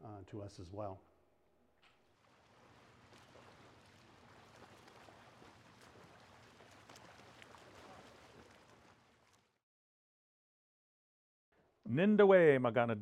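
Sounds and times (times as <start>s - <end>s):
small waves lapping: 1.8s - 9.6s.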